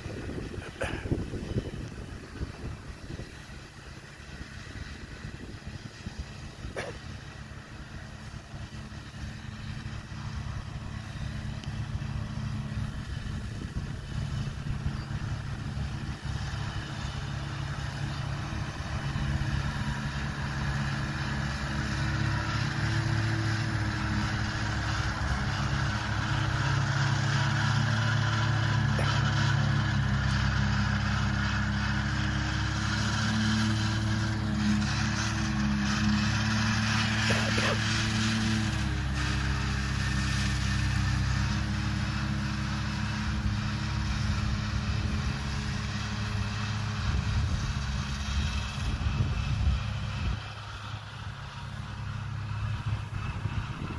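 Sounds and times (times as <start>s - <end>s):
tractor diesel engine droning: 0.0s - 53.9s.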